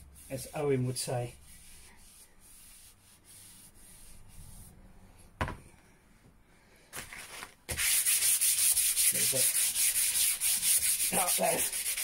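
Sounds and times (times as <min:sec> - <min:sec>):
sandpaper rubbing on wood: 0:00.0 - 0:04.6, 0:07.7 - 0:12.0
knock: 0:05.4 - 0:05.6.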